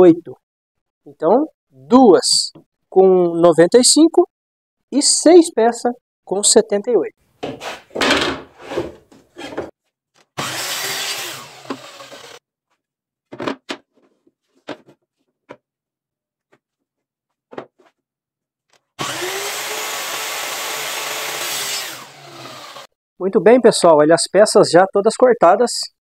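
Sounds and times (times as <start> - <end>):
wood knocking: 7.4 - 9.7
electric saw cutting wood: 10.4 - 12.4, 19.0 - 22.9.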